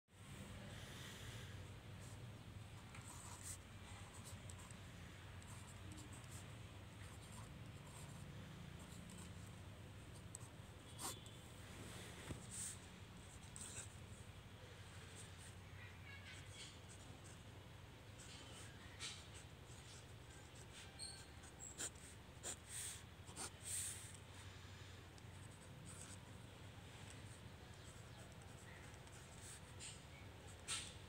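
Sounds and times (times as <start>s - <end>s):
ballpoint pen scratching on paper: 2.9s - 4.8s, 5.4s - 9.5s, 10.1s - 11.4s, 12.3s - 14.0s, 18.2s - 24.1s, 25.2s - 26.3s, 27.2s - 31.0s.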